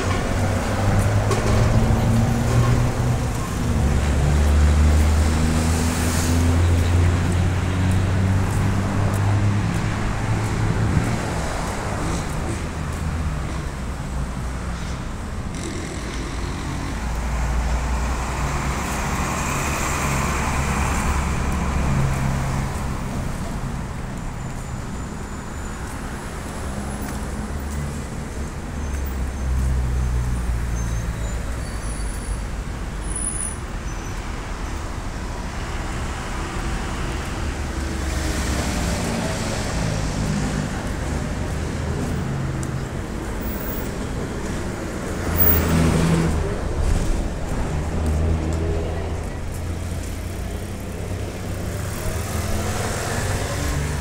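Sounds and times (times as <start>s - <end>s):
vehicles driving past: 0.0s - 54.0s.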